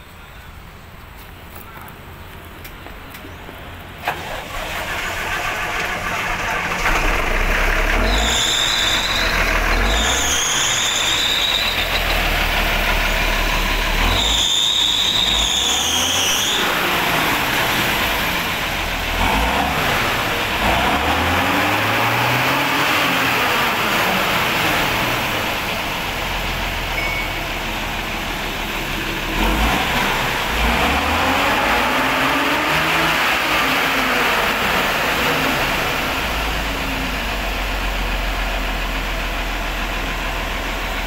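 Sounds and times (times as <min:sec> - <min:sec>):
diesel engine starting and revving: 0:01.5 - 0:41.0
high squeal: 0:08.0 - 0:12.8, 0:13.4 - 0:18.0, 0:26.9 - 0:27.5.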